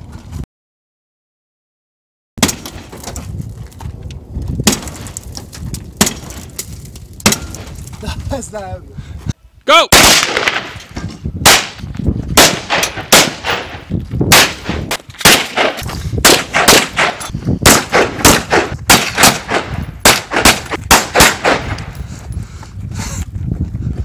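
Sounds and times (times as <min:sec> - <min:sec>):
rifle shots with echo: 0:09.9 - 0:10.8, 0:11.4 - 0:11.8, 0:12.4 - 0:21.9.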